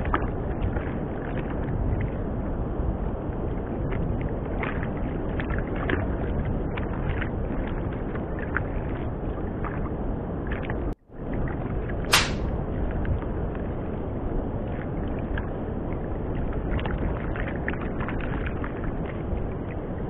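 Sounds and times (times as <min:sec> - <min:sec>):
wind on microphone: 0:00.0 - 0:20.0
water slapping boat hull: 0:03.4 - 0:13.2, 0:14.7 - 0:20.0.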